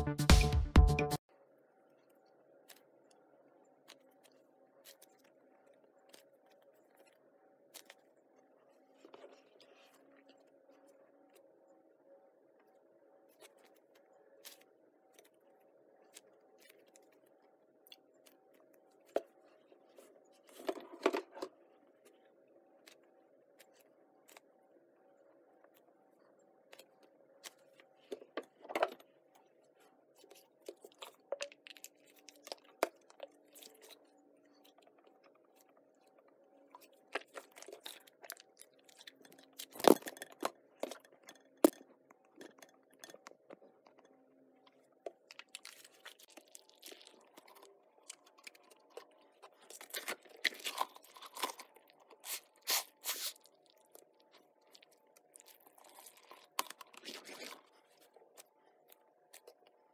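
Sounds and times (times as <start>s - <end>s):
faint steady hum: 1.2s - 59.9s
slime squeezed by hand: 52.2s - 53.5s.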